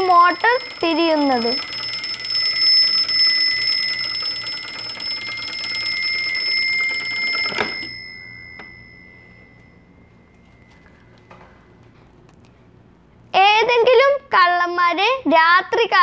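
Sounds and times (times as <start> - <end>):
bell tone ringing: 0.0 - 11.6
motor-driven alarm bell clattering: 0.0 - 11.6.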